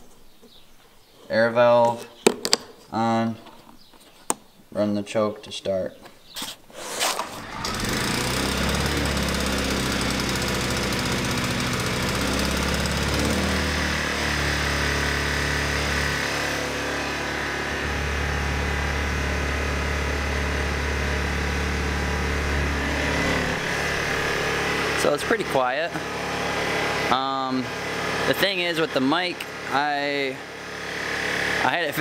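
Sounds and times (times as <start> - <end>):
generator pull-start: 6.9 - 31.9
small generator engine running: 7.3 - 32.0.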